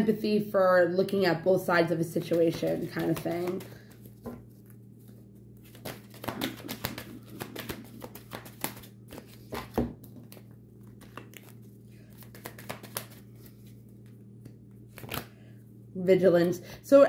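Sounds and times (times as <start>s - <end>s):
steady low hum: 0.0s - 17.0s
cards being shuffled: 2.2s - 15.4s.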